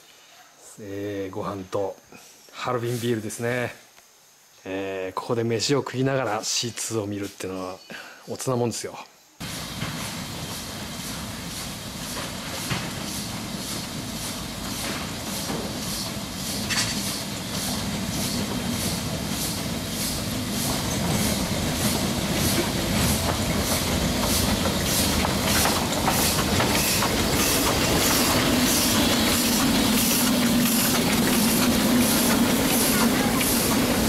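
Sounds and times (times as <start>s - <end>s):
steam hiss: 9.3s - 34.0s
steam locomotive exhaust chuffs: 9.4s - 34.0s
train rumble: 9.4s - 34.0s.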